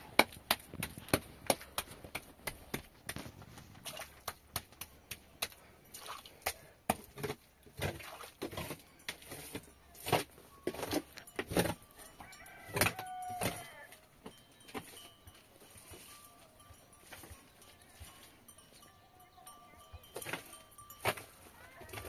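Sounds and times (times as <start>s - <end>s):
drawn-out animal call: 17.6s - 22.0s.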